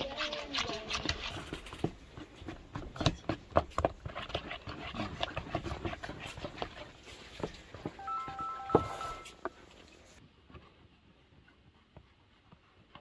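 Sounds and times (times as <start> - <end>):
fork stirring batter in bowl: 0.0 - 7.9.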